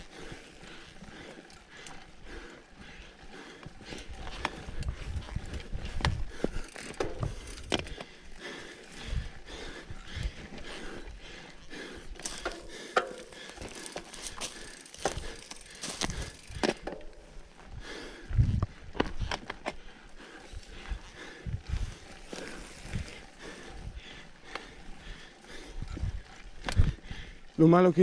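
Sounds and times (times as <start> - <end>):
bike chain and frame rattling: 0.0 - 28.0
wind buffeting microphone: 4.0 - 7.9, 17.7 - 19.3, 20.5 - 24.1, 25.5 - 27.4
tyres crunching over dirt: 12.2 - 17.7.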